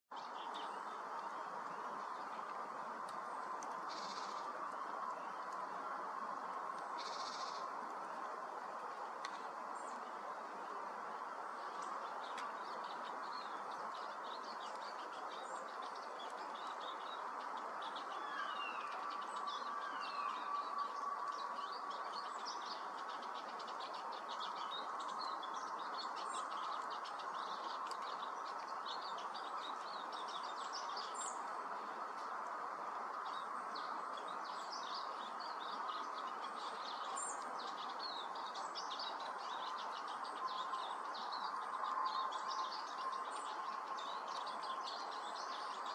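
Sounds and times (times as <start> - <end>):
birds twittering: 3.2 - 5.6.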